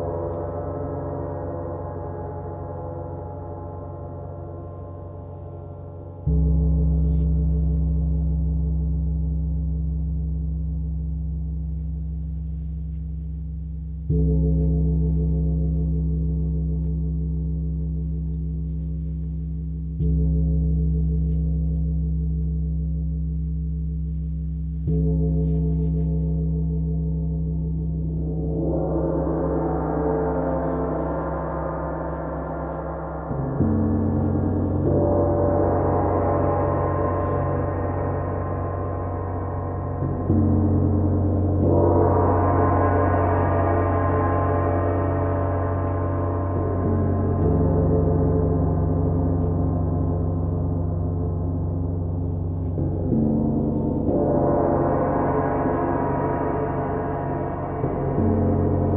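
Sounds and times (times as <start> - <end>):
large gongs ringing: 26.3 - 58.9.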